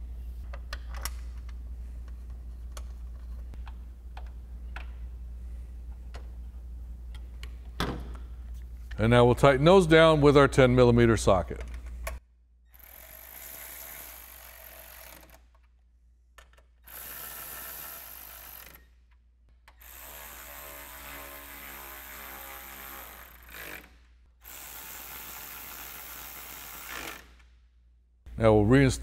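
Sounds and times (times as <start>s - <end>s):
electric ratchet running: 12.8s - 15.4s, 16.8s - 18.8s, 19.8s - 27.4s.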